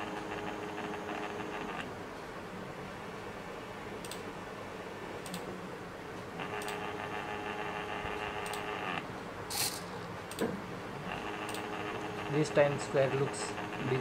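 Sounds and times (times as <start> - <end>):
high motor whine: 0.0 - 1.9, 11.0 - 14.0
stepper motors humming: 0.0 - 1.9, 6.4 - 10.4, 11.0 - 14.0.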